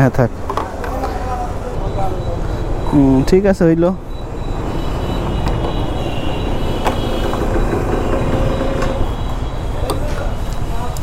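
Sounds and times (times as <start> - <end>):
traffic engines rumbling: 0.0 - 11.0.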